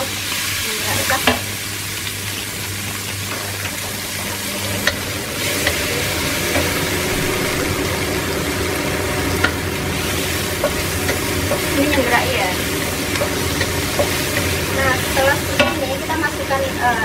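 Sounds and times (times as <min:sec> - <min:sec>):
food sizzling in a wok: 0:00.0 - 0:17.0
spatula knocking against wok: 0:15.5 - 0:15.8.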